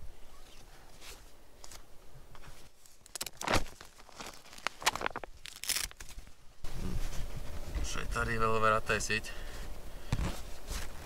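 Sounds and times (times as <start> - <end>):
nylon fabric rustling: 2.4 - 7.7.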